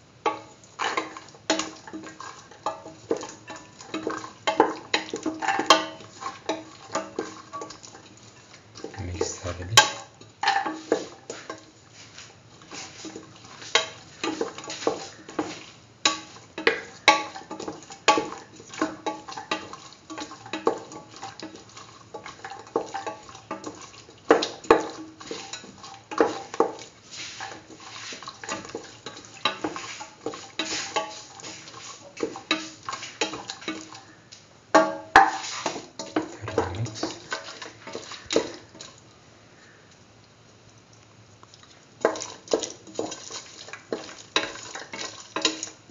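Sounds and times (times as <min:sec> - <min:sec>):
spoon scraping metal pan: 0:27.2 - 0:33.9.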